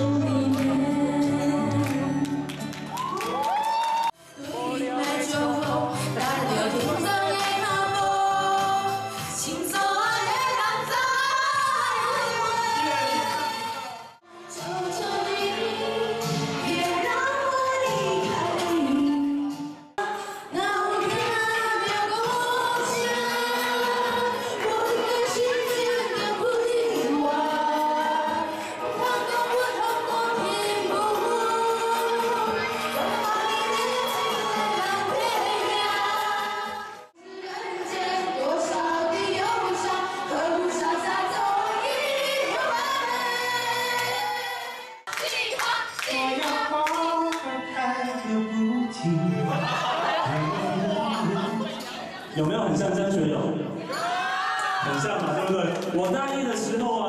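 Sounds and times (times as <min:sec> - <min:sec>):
women singing together: 0:00.0 - 0:02.5, 0:04.4 - 0:48.7
hand-clapping: 0:45.1 - 0:47.4.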